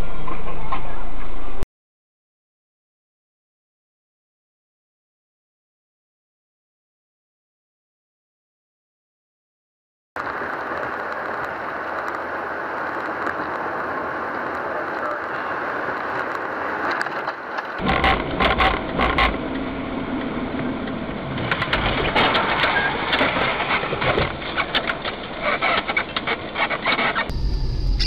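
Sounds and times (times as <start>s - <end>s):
car road and engine noise: 10.2s - 28.0s.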